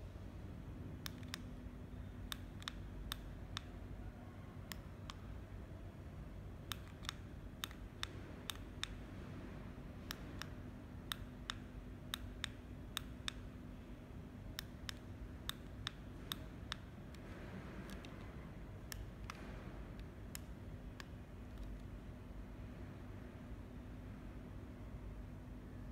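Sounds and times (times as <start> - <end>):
faint steady hum: 0.0 - 25.9.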